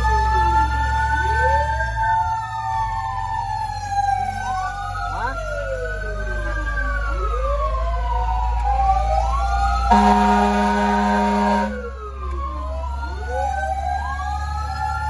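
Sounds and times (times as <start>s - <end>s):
fire truck siren wailing: 0.0s - 15.0s
truck engine rumble: 0.0s - 15.0s
horn blast: 9.9s - 11.9s.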